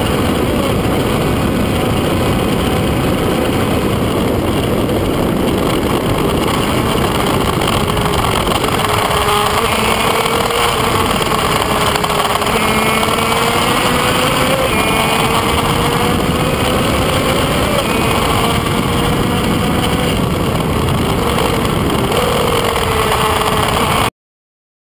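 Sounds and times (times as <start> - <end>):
wind rush on microphone: 0.0 - 24.1
motorcycle engine high note: 5.0 - 24.1.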